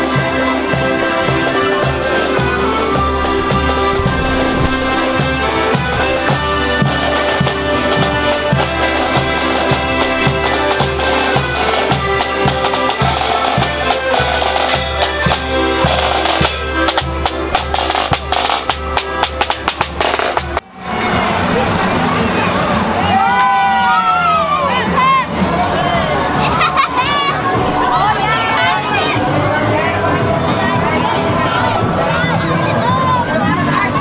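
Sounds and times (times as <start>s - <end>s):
accordion chords: 0.0s - 20.3s
snare and bass drum beats: 1.6s - 20.6s.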